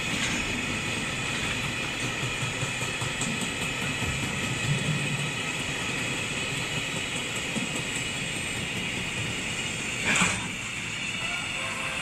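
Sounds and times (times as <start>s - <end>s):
train wheels clattering on rails: 0.0s - 12.0s.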